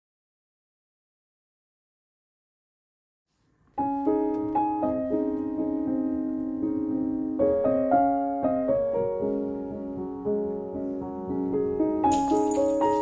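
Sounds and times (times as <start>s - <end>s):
soft piano music: 3.7s - 13.0s.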